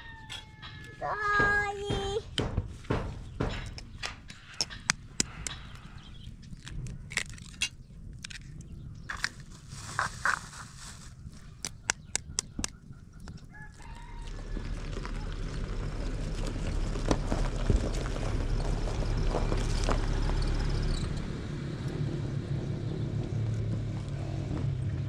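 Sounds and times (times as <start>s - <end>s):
rooster crowing: 0.0s - 1.0s, 13.5s - 15.5s
eggshells cracking: 6.4s - 12.8s
car driving over gravel: 13.9s - 21.7s.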